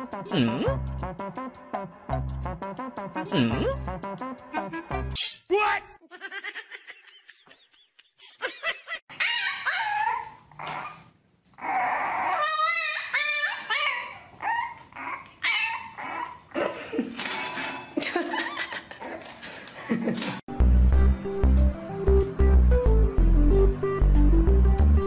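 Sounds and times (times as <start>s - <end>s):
dog whining and yipping: 9.1s - 16.6s.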